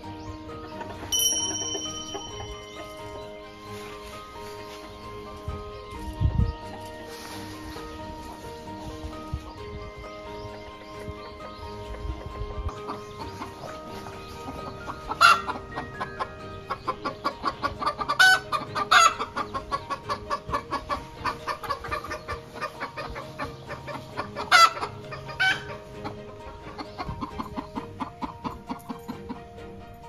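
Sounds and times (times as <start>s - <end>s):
background music: 0.0s - 30.0s
chickens clucking: 0.2s - 1.2s, 2.2s - 29.5s.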